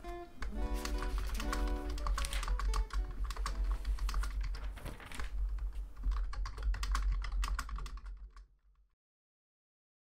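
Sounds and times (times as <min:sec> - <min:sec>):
keyboard key clicks: 0:00.4 - 0:04.6.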